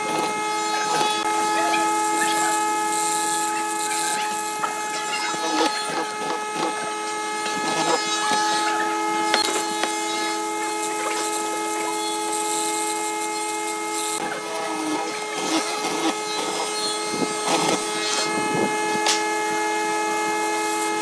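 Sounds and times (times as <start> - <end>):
steady multi-toned hum: 0.3 - 15.4.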